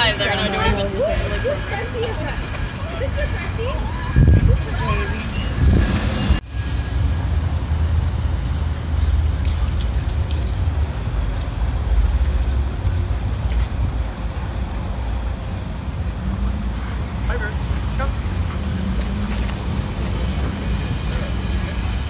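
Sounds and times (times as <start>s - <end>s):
faint jingling tags: 8.5s - 22.0s.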